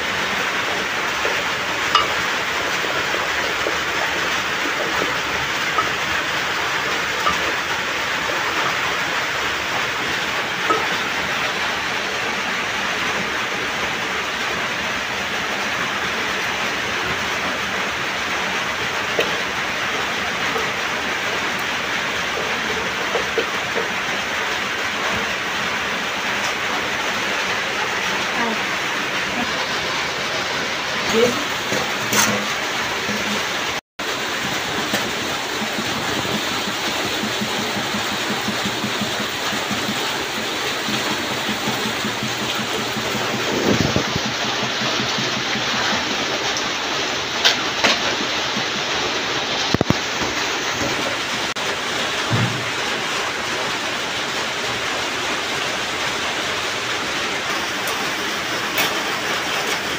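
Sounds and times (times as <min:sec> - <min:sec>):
dishes clinking in basins: 0:00.0 - 0:11.7, 0:30.9 - 0:33.8
steady rain: 0:00.0 - 0:59.9.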